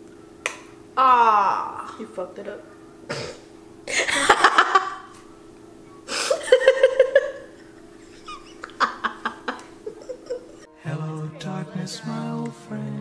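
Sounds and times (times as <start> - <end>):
women laughing: 3.8 - 5.2, 6.1 - 10.7.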